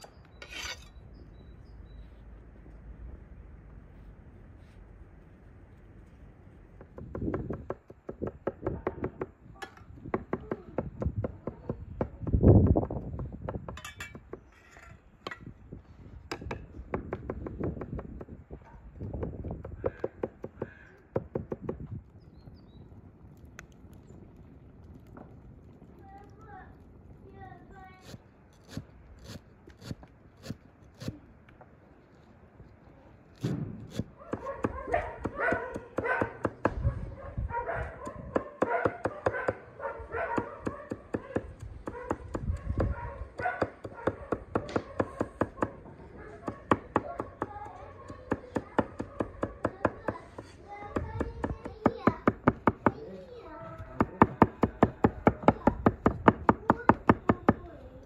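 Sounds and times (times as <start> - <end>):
cleaver chopping on wooden board: 43.5 - 45.8.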